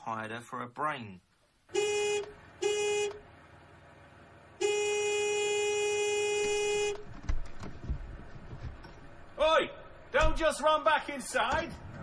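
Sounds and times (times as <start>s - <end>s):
vehicle horn honking: 1.7s - 3.2s, 4.6s - 7.1s.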